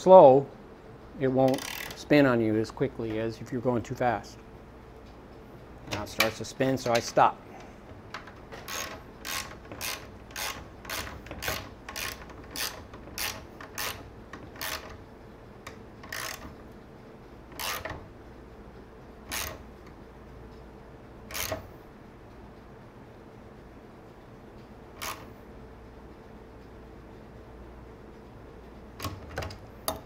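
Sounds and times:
ratchet wrench clicking: 0:01.5 - 0:02.0, 0:08.2 - 0:15.0, 0:15.7 - 0:16.6, 0:17.5 - 0:18.0, 0:19.3 - 0:19.7, 0:21.3 - 0:21.7, 0:25.0 - 0:25.3.

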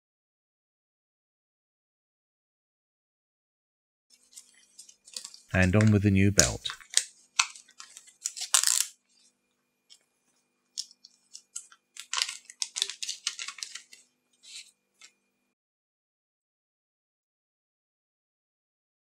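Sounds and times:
plastic bag crinkling: 0:04.2 - 0:09.3, 0:10.7 - 0:15.1.

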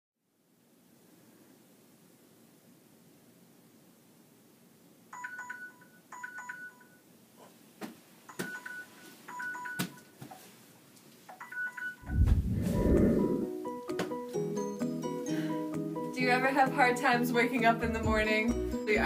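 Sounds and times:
phone alarm beeps: 0:05.1 - 0:07.0, 0:08.3 - 0:10.0, 0:11.4 - 0:12.0.

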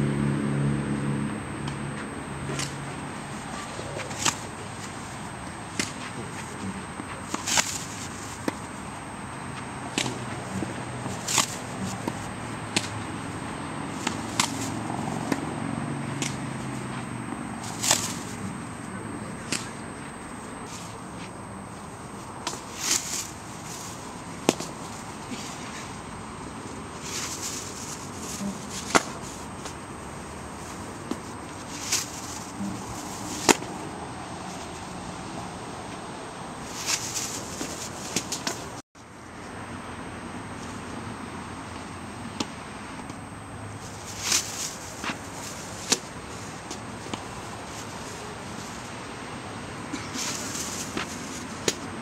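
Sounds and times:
tennis balls bouncing on court: 0:01.4 - 0:36.1, 0:45.0 - 0:48.1, 0:49.8 - 0:52.0
tennis balls struck by rackets: 0:01.4 - 0:38.8, 0:41.7 - 0:43.3, 0:44.1 - 0:52.0.

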